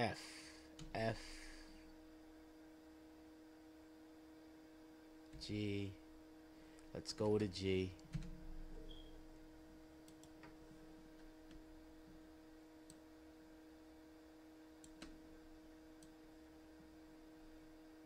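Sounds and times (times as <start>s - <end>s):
faint steady hum: 0.0s - 18.0s
computer mouse clicks: 10.0s - 10.6s, 14.8s - 15.2s.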